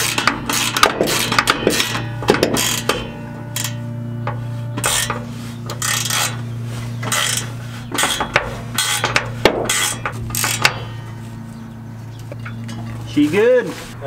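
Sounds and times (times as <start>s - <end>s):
ratchet wrench rasping: 0.0s - 11.1s.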